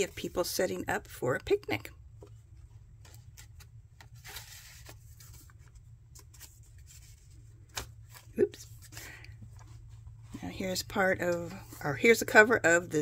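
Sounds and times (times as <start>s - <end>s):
low steady hum: 0.0s - 13.0s
paper rustling: 2.2s - 10.4s.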